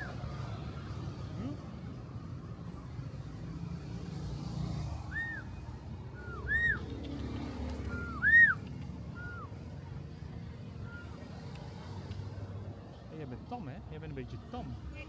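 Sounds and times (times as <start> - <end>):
low traffic rumble: 0.0 - 15.0
starling whistling: 5.0 - 7.2, 7.8 - 9.7, 10.8 - 11.3.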